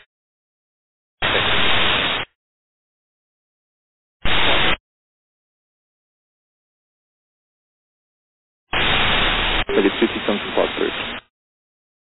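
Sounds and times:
radio static hiss: 1.2 - 2.4, 4.2 - 4.8, 8.7 - 11.3.

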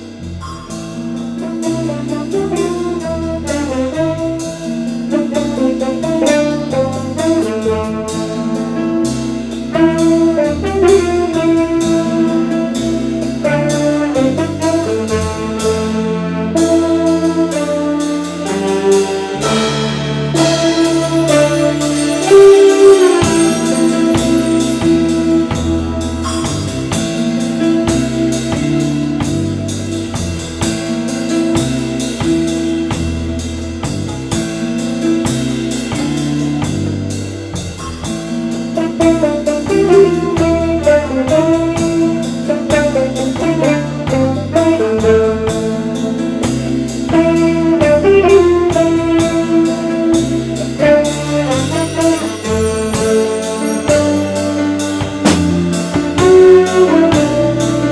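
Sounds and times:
horns melody: 0.0 - 57.9
jazz ensemble playing: 0.0 - 57.9.

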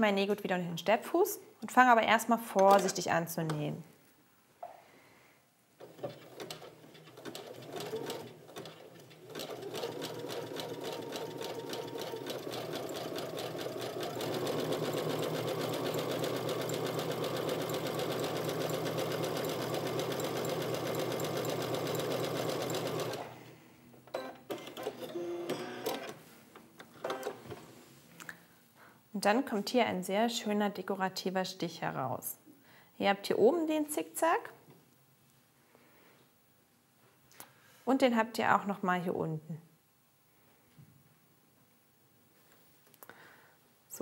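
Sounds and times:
sewing machine stitching: 5.8 - 23.3.

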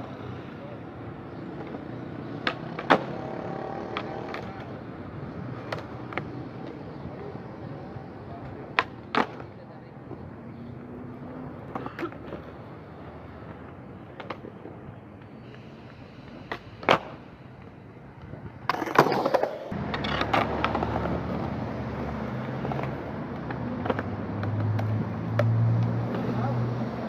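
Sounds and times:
skateboard wheels rolling on concrete: 0.0 - 27.0
skateboard clacks: 1.5 - 4.8, 5.4 - 6.8, 8.4 - 10.3, 11.2 - 15.6, 16.3 - 26.4.

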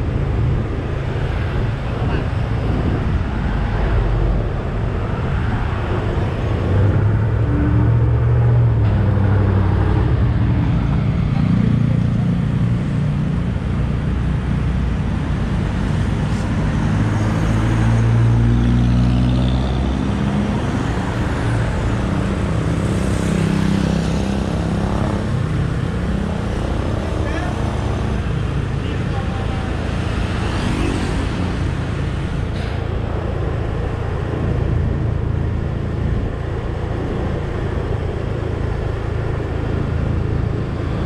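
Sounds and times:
road and wind noise: 0.0 - 41.0.

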